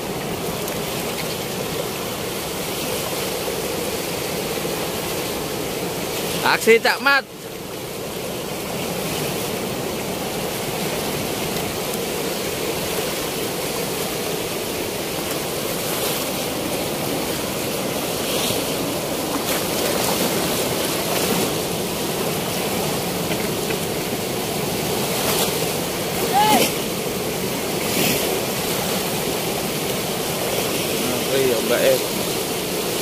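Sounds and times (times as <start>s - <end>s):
river water rushing through weir: 0.0s - 33.0s.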